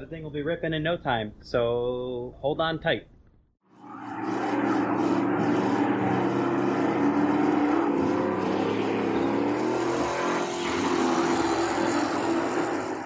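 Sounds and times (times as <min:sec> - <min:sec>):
boat engine running under throttle: 0:03.9 - 0:13.0.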